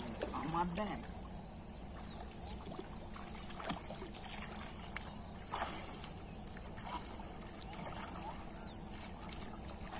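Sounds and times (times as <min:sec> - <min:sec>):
shallow water sloshing and splashing: 0:02.0 - 0:09.9.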